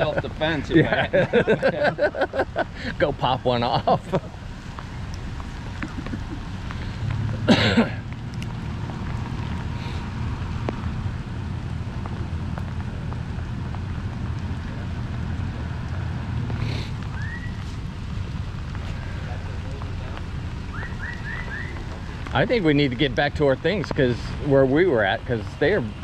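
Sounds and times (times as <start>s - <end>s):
low constant hum: 0.0s - 26.0s
rain pattering: 0.0s - 26.0s.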